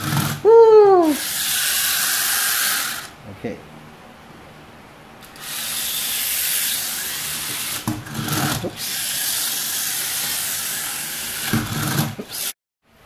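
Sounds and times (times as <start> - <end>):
toy car motor whirring: 0.0 - 3.1, 5.2 - 12.6.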